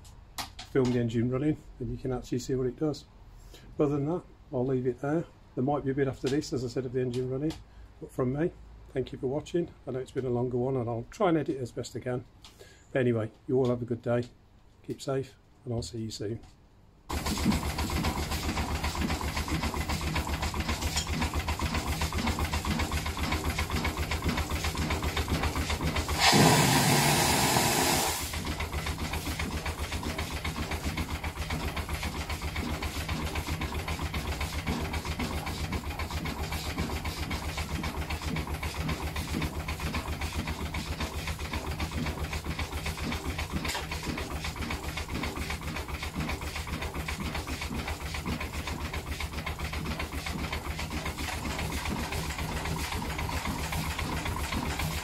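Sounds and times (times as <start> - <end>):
steam engine running: 17.1 - 55.0
steam hissing: 26.1 - 28.4.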